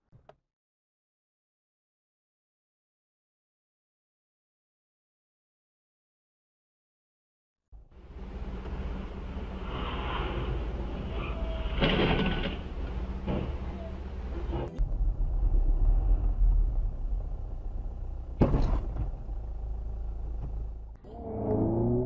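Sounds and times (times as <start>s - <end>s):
engine and road rumble: 7.7s - 22.0s
hissy road noise: 8.0s - 20.8s.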